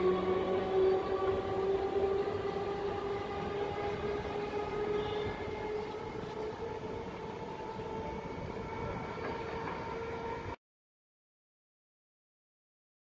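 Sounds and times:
electric train running: 0.0s - 10.6s.

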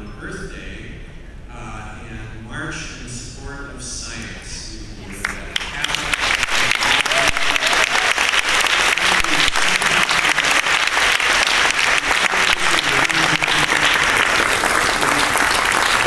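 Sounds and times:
audience applauding: 5.1s - 16.0s.

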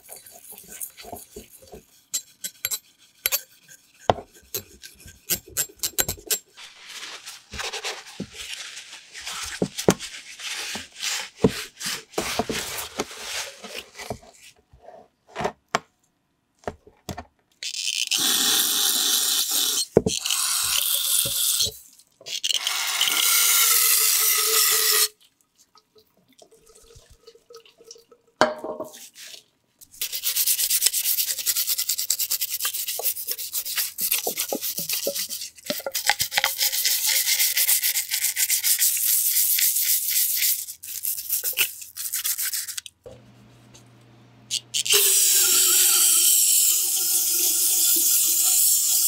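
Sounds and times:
brush scrubbing inside plastic reservoir: 0.0s - 14.6s, 28.9s - 42.8s.

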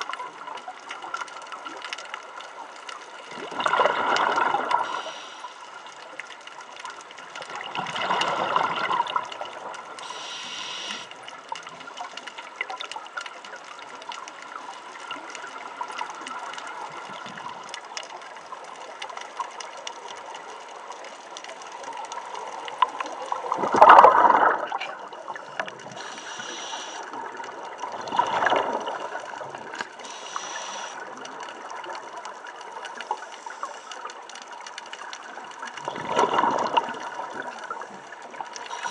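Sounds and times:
gurgling exhaled bubbles: 3.2s - 5.3s, 7.4s - 12.9s, 21.6s - 34.0s, 35.2s - 38.9s
regulator inhalation hiss: 4.8s - 5.7s, 10.0s - 11.2s, 26.0s - 27.1s, 30.0s - 31.0s.

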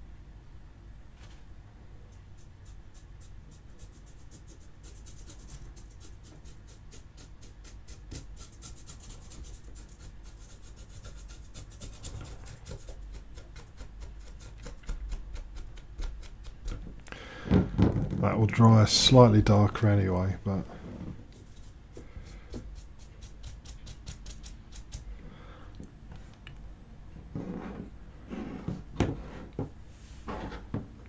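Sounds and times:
paintbrush brushing strokes: 2.2s - 14.8s.

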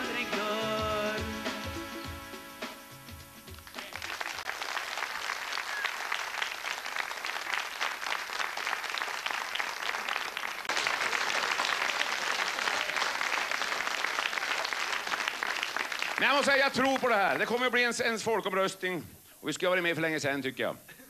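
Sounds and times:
song ending: 0.0s - 3.9s
audience applauding: 3.5s - 17.6s.

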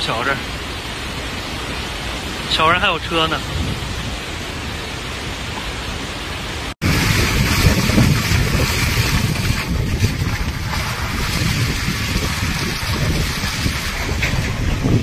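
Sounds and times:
floodwater rushing: 0.0s - 15.0s
wind buffeting microphone: 3.3s - 5.4s, 6.8s - 15.0s.

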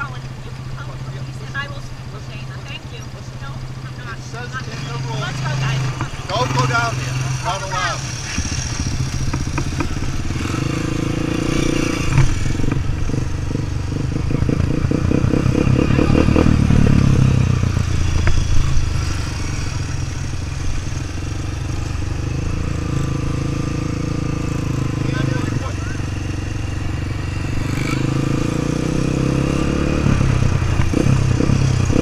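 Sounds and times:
motorcycle engine running: 0.0s - 32.0s.

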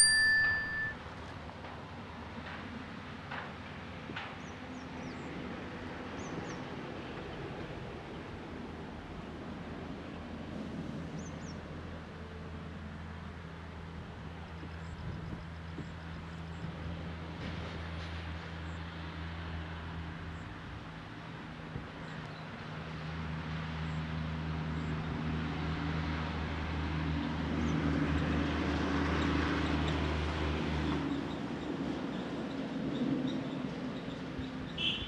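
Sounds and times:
locomotive engine drone: 0.0s - 2.1s.

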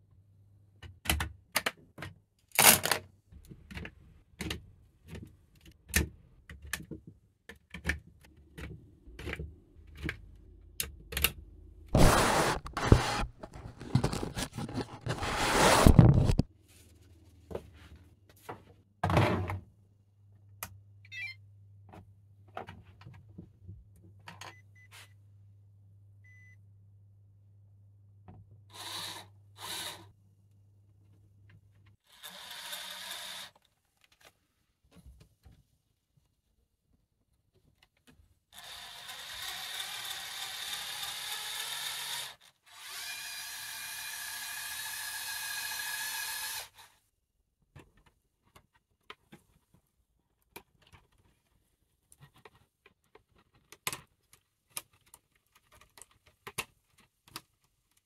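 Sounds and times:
plastic parts clicking and knocking: 0.8s - 11.4s, 52.1s - 58.0s
loud rustling scrape: 12.0s - 16.5s.

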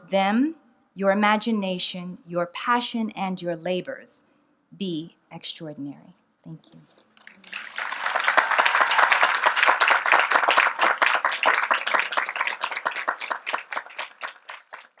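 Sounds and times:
crowd applauding: 7.2s - 15.0s.

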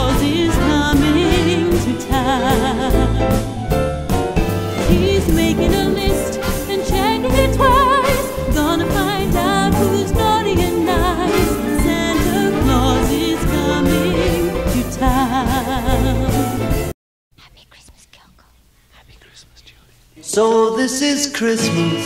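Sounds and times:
person singing with vibrato: 0.0s - 3.6s, 4.8s - 16.7s, 20.2s - 22.0s
upbeat christmas song with band: 0.0s - 16.9s.

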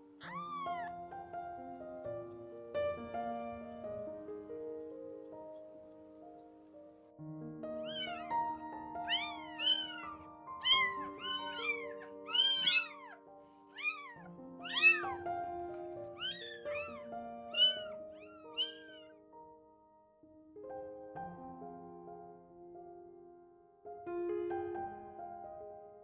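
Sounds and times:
kitten mewing: 0.1s - 1.3s, 7.8s - 8.4s, 9.0s - 13.2s, 13.8s - 19.2s.

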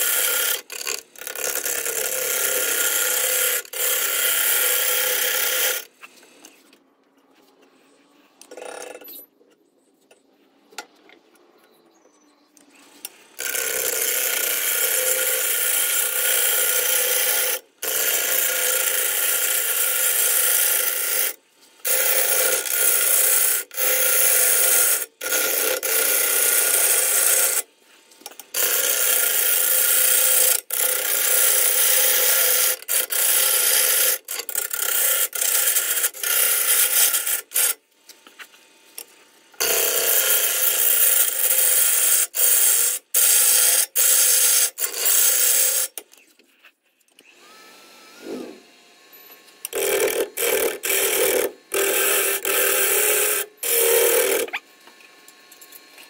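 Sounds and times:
lathe tool scraping wood: 12.7s - 37.7s, 39.2s - 46.0s, 47.3s - 48.8s, 49.6s - 54.6s.

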